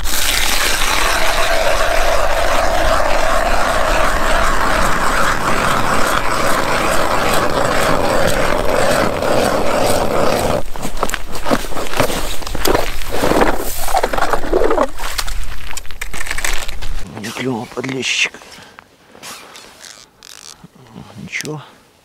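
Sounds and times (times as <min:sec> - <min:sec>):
ice auger grinding: 0:00.0 - 0:16.8.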